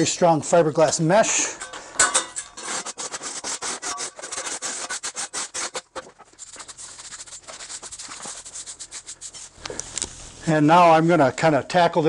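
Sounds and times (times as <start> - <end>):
shovel scraping rubble on concrete: 0.9 - 9.4.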